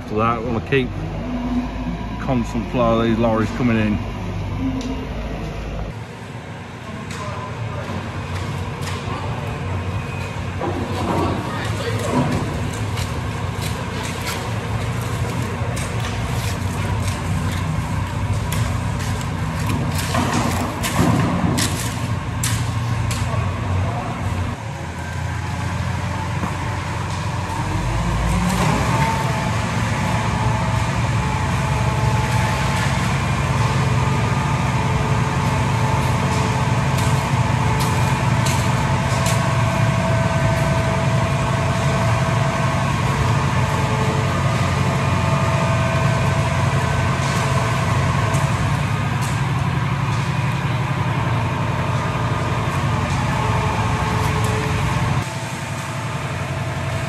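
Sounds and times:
diesel engine running: 0:00.0 - 0:57.0
shovels scraping wet concrete: 0:11.8 - 0:23.4, 0:34.8 - 0:40.9.

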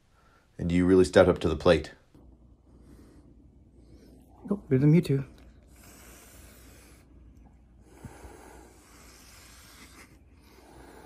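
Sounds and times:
cats hissing: 0:05.4 - 0:11.0.

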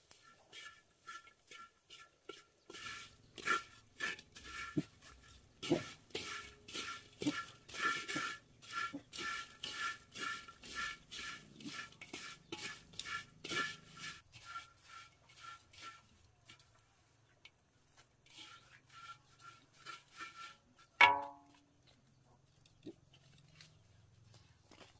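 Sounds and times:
chopsticks scraping in a wok: 0:00.0 - 0:21.7, 0:22.5 - 0:24.9
faint metallic ring: 0:21.0 - 0:21.6.

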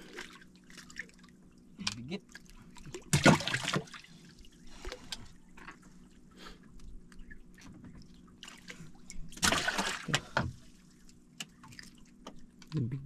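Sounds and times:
water splashing and dripping: 0:08.4 - 0:10.3.

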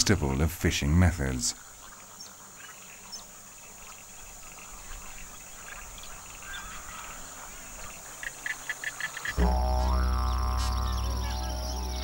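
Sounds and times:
faint bird chirps: 0:04.2 - 0:12.0
high insect drone: 0:07.7 - 0:12.0.

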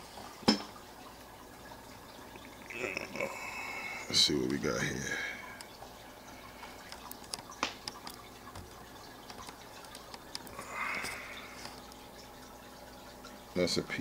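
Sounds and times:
faint steady hum: 0:00.0 - 0:14.0
water dripping and trickling: 0:00.0 - 0:14.0.

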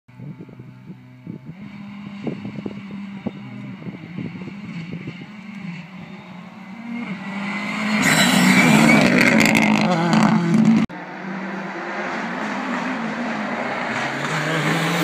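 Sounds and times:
rally car engine with gear changes: 0:00.2 - 0:15.0.

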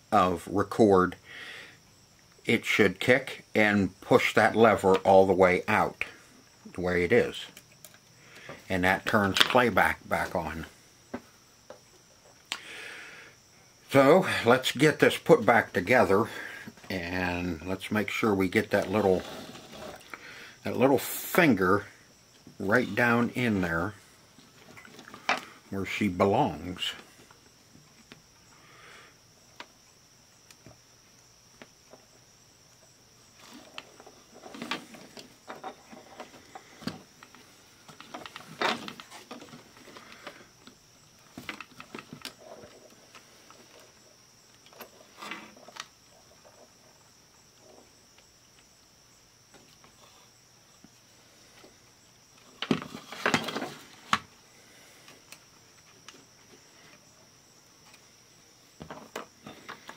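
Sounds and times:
faint high whine: 0:00.0 - 0:59.9.

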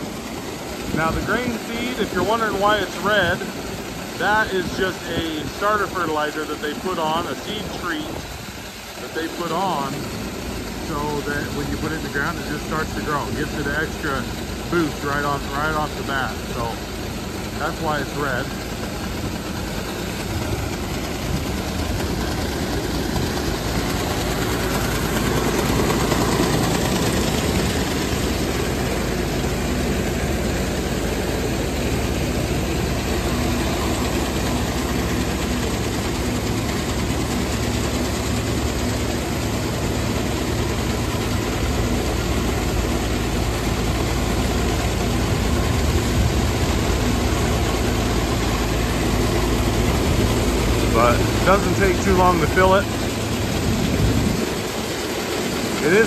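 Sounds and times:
tractor engine idling: 0:00.0 - 0:56.0
grain auger conveying seed: 0:00.8 - 0:08.2, 0:31.3 - 0:56.0.

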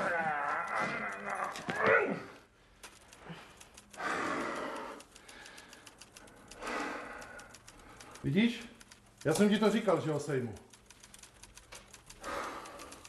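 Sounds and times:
man's muffled groans: 0:00.0 - 0:02.5.

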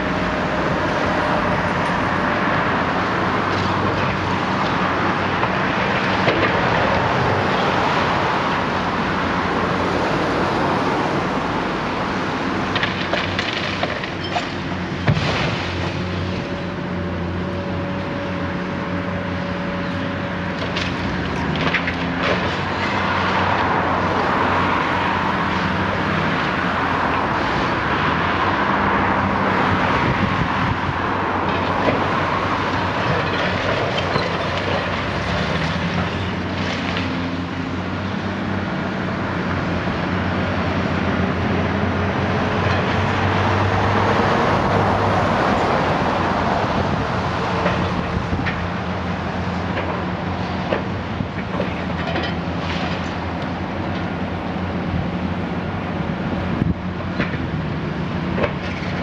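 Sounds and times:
diesel engine under load: 0:00.0 - 0:59.0
crunching masonry: 0:12.4 - 0:17.2, 0:19.7 - 0:25.7, 0:30.2 - 0:37.7.

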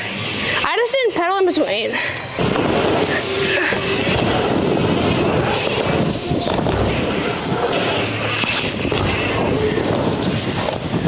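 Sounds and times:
steady din: 0:02.4 - 0:10.5
bike tyres rolling over ramps: 0:02.4 - 0:11.0.

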